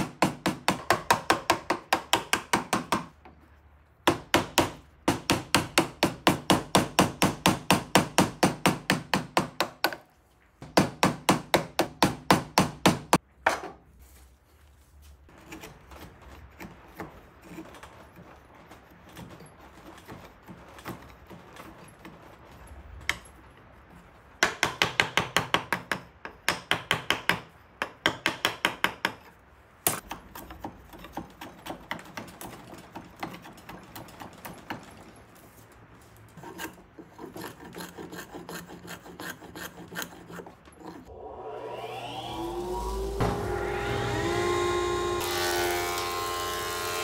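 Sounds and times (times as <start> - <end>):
hand tool shaving wood: 15.3 - 24.0, 29.9 - 41.2, 42.8 - 47.0.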